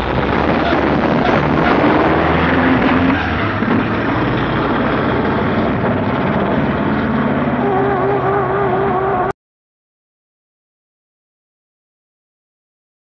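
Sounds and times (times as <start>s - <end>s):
cars accelerating at full throttle: 0.0s - 9.4s.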